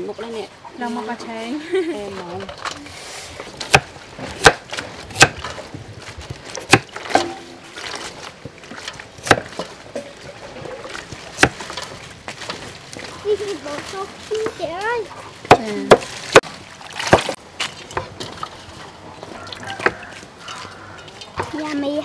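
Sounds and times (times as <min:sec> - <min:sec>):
knife chopping on wooden board: 0:03.7 - 0:05.5, 0:09.2 - 0:09.7.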